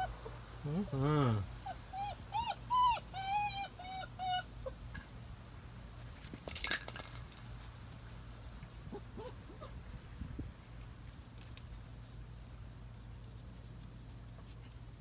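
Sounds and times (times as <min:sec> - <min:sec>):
puppy whimpering: 0:00.0 - 0:04.8, 0:08.9 - 0:09.8.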